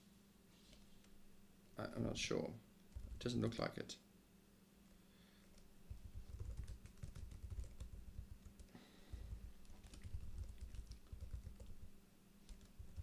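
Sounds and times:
typing on computer keyboard: 2.9 - 3.3, 5.4 - 11.9, 12.5 - 13.0.

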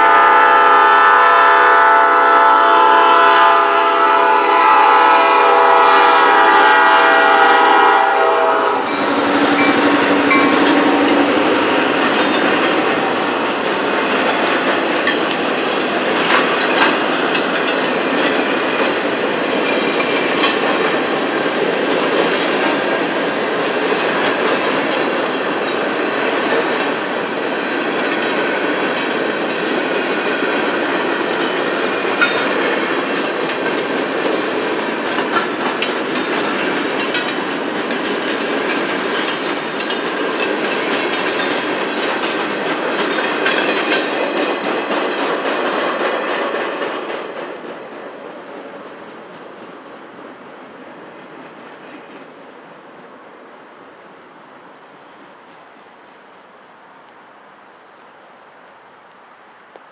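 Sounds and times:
steel wheels clattering on rail: 3.7 - 52.6.

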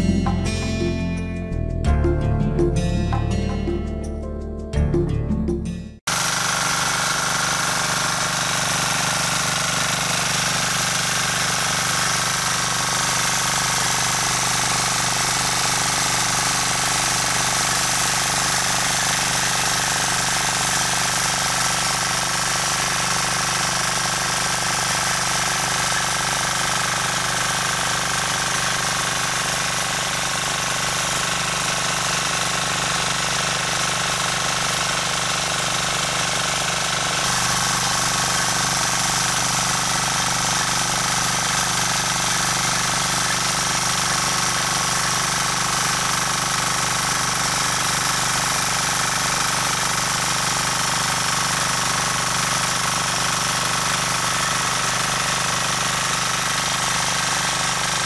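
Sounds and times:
rotary tiller running: 6.1 - 58.0.

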